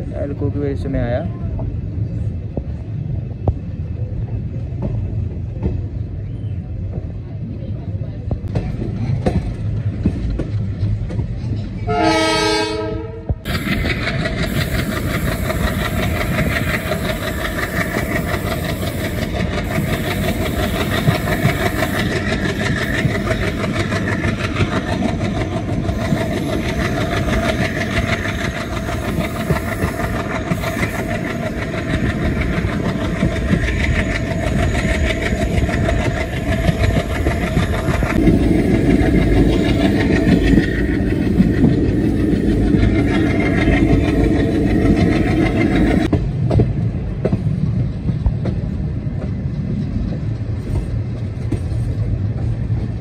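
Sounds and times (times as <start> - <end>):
train wheels on rails: 0.0 - 53.0
locomotive horn: 11.9 - 13.4
rushing wind: 12.6 - 53.0.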